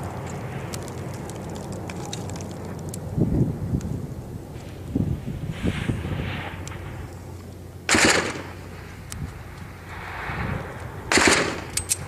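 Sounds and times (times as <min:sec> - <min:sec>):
gunshots with echo: 0:07.9 - 0:08.5, 0:11.1 - 0:11.7.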